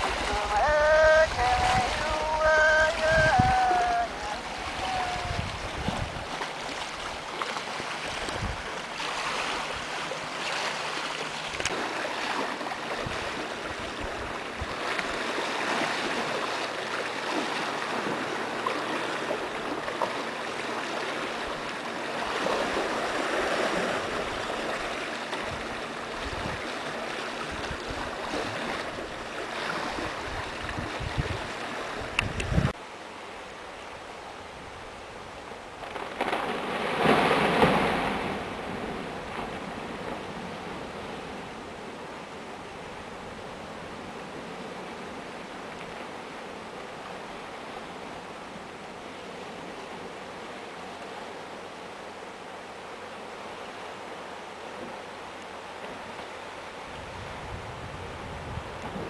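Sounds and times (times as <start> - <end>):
water lapping against rocks: 0.0 - 32.8
wind thumping microphone: 30.0 - 32.8.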